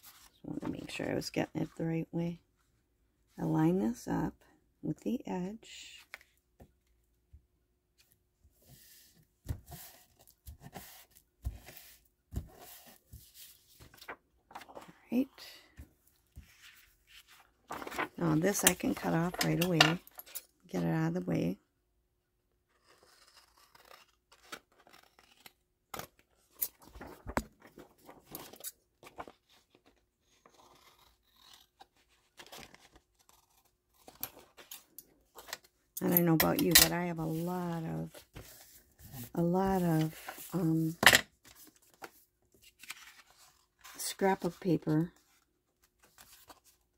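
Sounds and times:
paper rustling: 9.6 - 15.0, 16.4 - 20.4, 26.5 - 35.7, 36.8 - 46.9.

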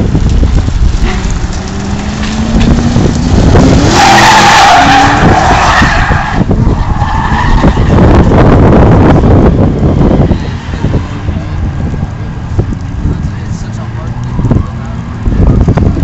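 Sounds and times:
car engine revving: 0.0 - 16.0
tyres squealing: 3.8 - 7.9.

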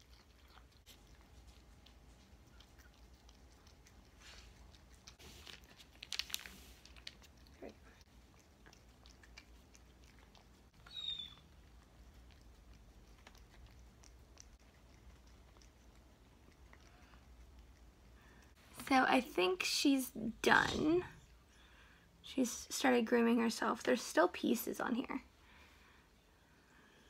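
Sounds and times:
cat chewing and licking: 0.0 - 18.8.

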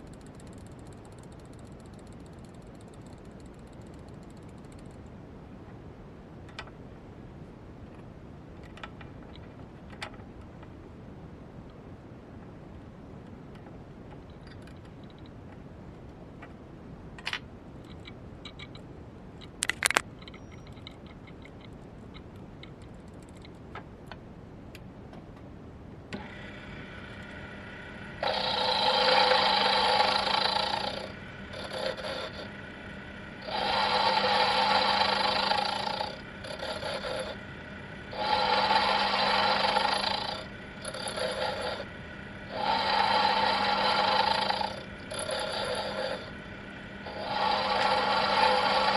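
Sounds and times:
lathe running with hum: 26.1 - 48.9
tool scraping cutting metal: 28.1 - 32.6, 33.4 - 46.4, 47.0 - 48.9.

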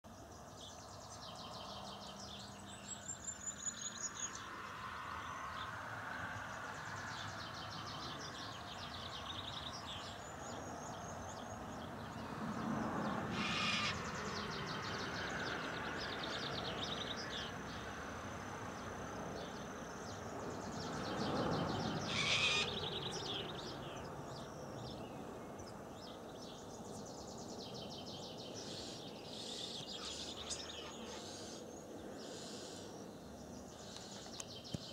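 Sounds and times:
small birds chirping: 6.6 - 17.9, 18.8 - 34.9
harsh bird calls: 13.0 - 14.6, 21.8 - 24.1, 28.6 - 32.9
loud pulsing bird calls: 13.3 - 17.5, 21.6 - 24.5, 28.5 - 32.9.

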